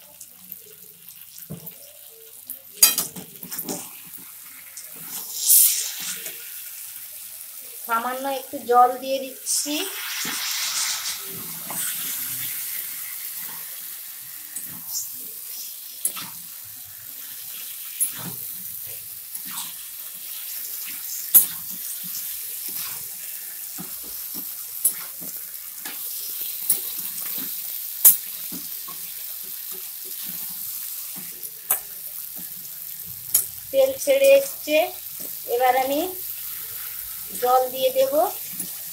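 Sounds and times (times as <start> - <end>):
curry sizzling in a pan: 0.0 - 38.9.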